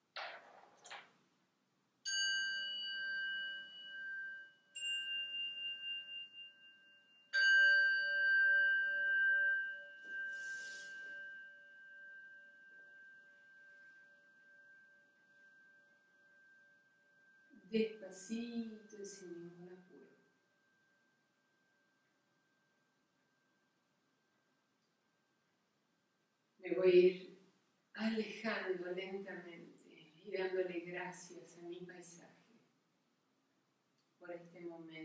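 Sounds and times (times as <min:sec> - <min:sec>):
metal meditation bell ringing: 0:02.1 - 0:17.7.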